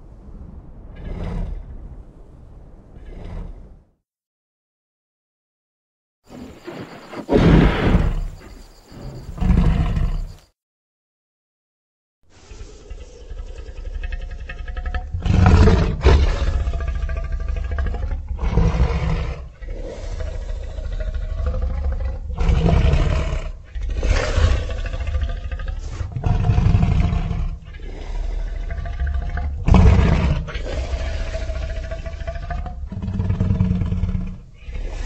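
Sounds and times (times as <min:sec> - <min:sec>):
low rumble: 0:00.0 - 0:04.0
creature growling: 0:12.4 - 0:35.0
deep creature roars: 0:12.4 - 0:35.0.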